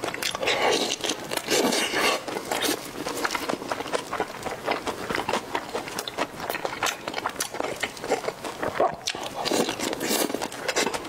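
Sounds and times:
close chewing and mouth noises: 0.0 - 11.0.

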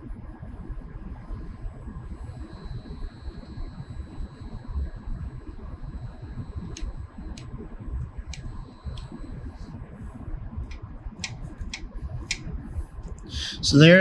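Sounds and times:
faint steady high whine: 0.0 - 14.0
sharp ticks: 6.6 - 7.5, 8.3 - 9.2, 10.7 - 12.5.

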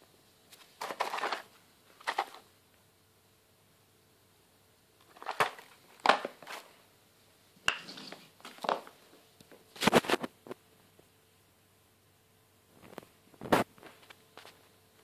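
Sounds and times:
cardboard boxes rustling and knocking: 0.6 - 2.4.

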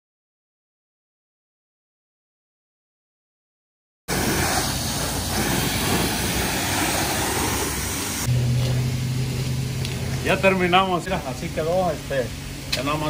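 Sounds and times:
pressure washer spraying water: 4.1 - 13.0
steady low hum: 4.2 - 13.0.

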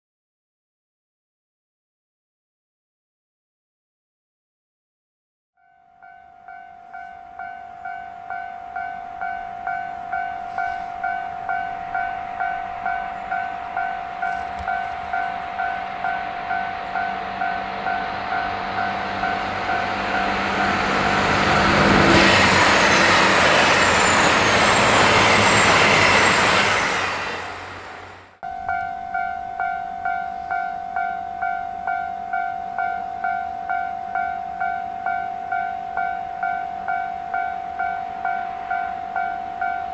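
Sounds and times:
level crossing alarm dinging: 5.6 - 21.9, 28.4 - 39.9
train passing on rails: 6.0 - 39.9.

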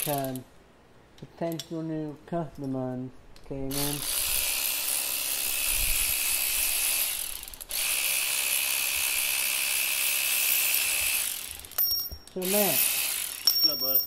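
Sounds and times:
power ratchet whirring: 3.7 - 11.8, 12.4 - 13.8.

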